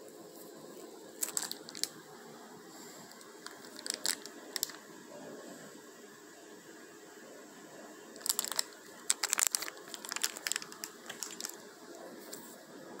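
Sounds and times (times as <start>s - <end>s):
crinkling handling noise: 0.0s - 2.0s, 2.7s - 4.9s, 8.1s - 12.6s.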